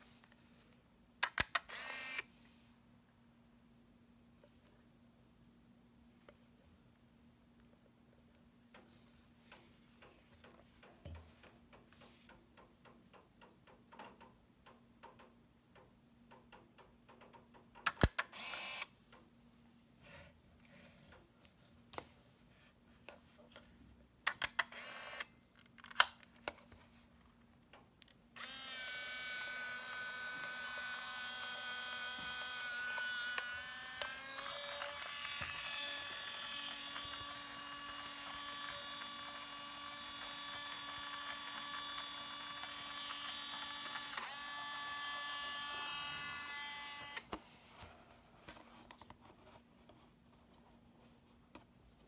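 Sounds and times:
film transport motor whirring: 1.5s - 2.2s, 18.3s - 18.8s, 24.6s - 25.3s, 28.4s - 47.3s.

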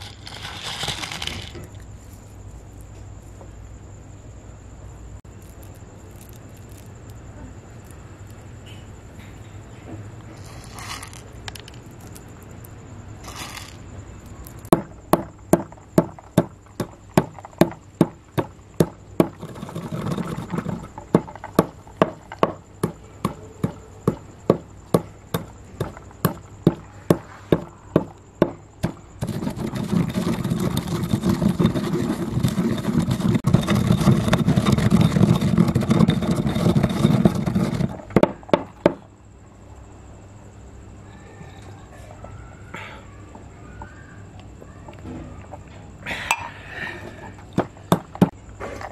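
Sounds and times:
coarse scraping: 0.0s - 3.0s, 10.3s - 12.4s, 13.1s - 14.7s, 19.2s - 24.1s, 28.8s - 38.2s.

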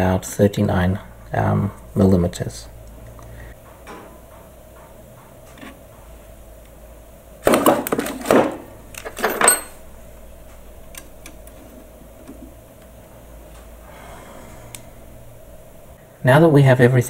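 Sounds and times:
metal parts clattering and scraping: 7.5s - 9.8s.

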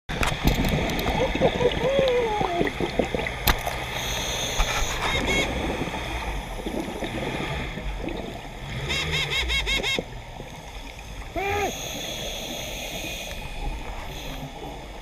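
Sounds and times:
bubbles rushing and gurgling: 0.1s - 15.0s
scuba regulator breathing: 10.7s - 14.6s.

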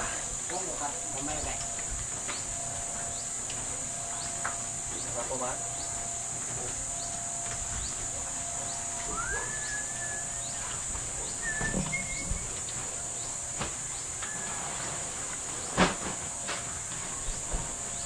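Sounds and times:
steady high hiss: 0.0s - 18.0s
bird-like animal calls: 8.6s - 12.7s.

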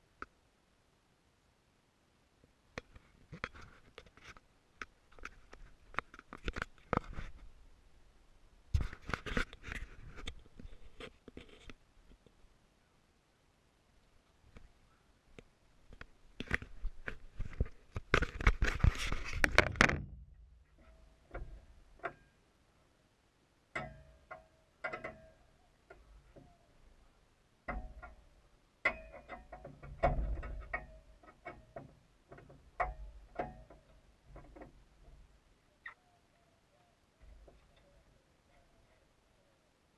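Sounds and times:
camera handling rubbing and knocks: 2.9s - 4.4s, 5.1s - 7.4s, 8.8s - 11.8s, 16.4s - 20.0s.

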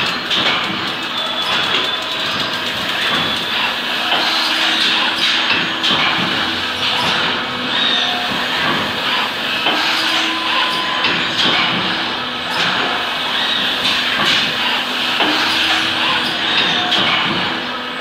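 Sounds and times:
sharp clicks and knocks: 0.0s - 7.4s
machine hum and hiss: 0.0s - 18.0s.

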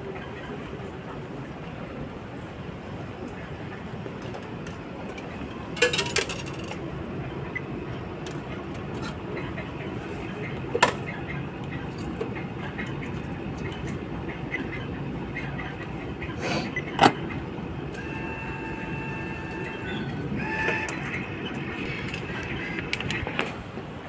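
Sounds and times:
rail station rumble: 0.0s - 24.0s
steady high tone: 17.9s - 22.9s.

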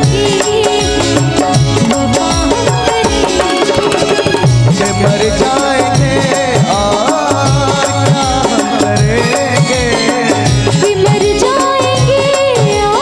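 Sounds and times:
live band playing: 0.0s - 13.0s
steady drum beat: 0.0s - 13.0s.

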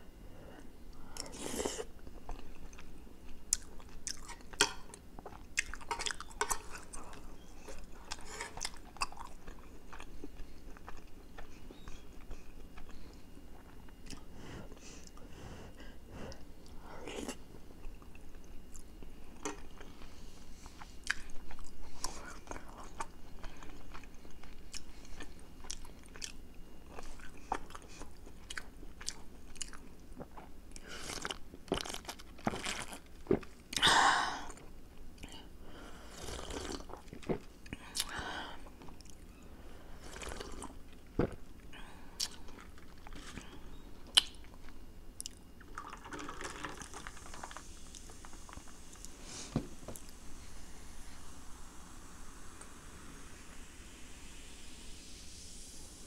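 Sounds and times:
person chewing food: 1.2s - 15.3s, 16.3s - 33.8s, 36.2s - 39.2s, 40.1s - 49.2s.

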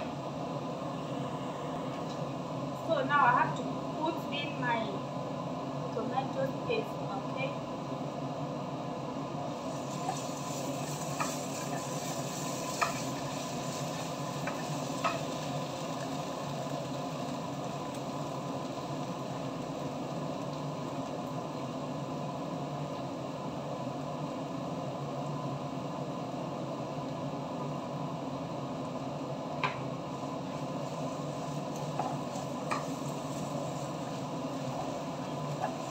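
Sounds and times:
onions sizzling in a frying pan: 9.2s - 28.6s, 29.4s - 35.9s
wooden spatula scraping: 9.8s - 15.2s.

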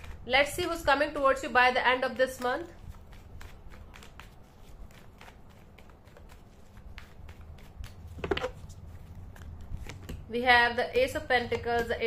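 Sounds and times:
cards being shuffled: 1.9s - 10.3s.

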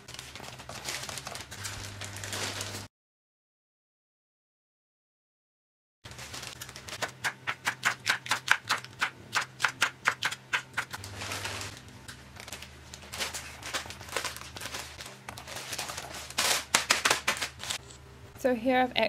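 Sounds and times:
plastic bag rustling and crinkling: 0.0s - 2.9s, 6.1s - 7.1s, 11.0s - 17.8s.

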